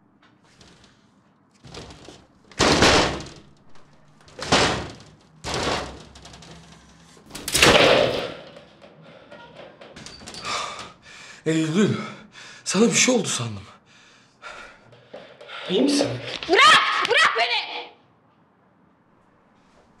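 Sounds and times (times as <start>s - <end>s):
heavy thuds on a door: 1.7s - 3.5s, 4.3s - 6.4s.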